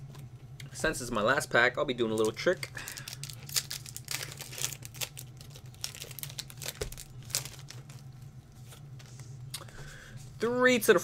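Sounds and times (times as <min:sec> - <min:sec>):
foil wrapper crinkling: 0:02.1 - 0:08.2.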